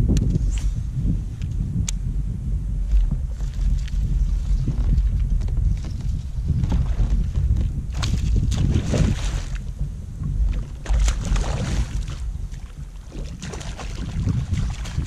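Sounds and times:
wind rumble on microphone: 0.0s - 15.0s
fish splashing in water: 10.6s - 15.0s.

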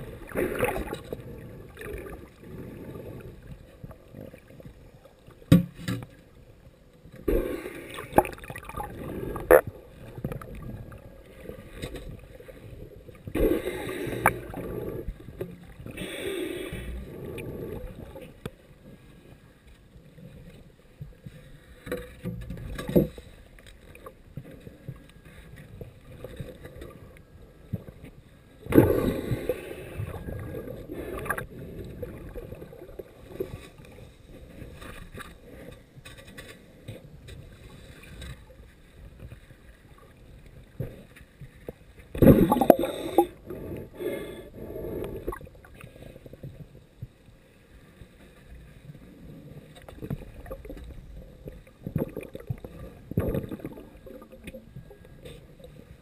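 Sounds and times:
muffled underwater surf sloshing: 0.0s - 56.0s.

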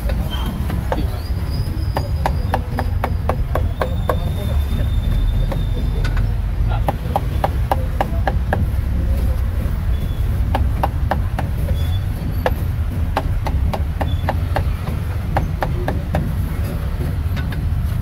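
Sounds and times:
cleaver chopping meat: 1.8s - 4.3s, 6.8s - 8.8s, 12.5s - 16.4s.

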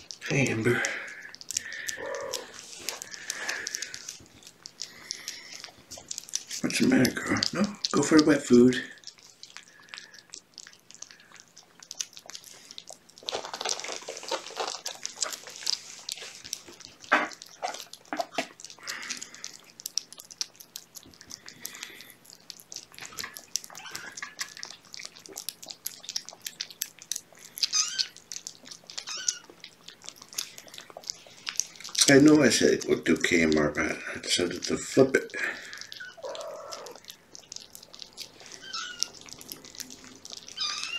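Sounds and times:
cats chewing wet food: 0.0s - 40.9s
cat mewing: 1.9s - 4.0s, 23.0s - 24.3s, 27.6s - 28.2s, 28.9s - 29.6s, 35.9s - 37.1s, 37.9s - 40.9s.

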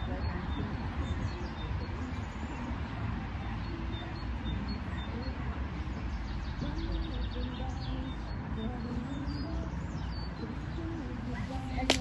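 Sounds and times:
wind on microphone: 0.0s - 4.7s.

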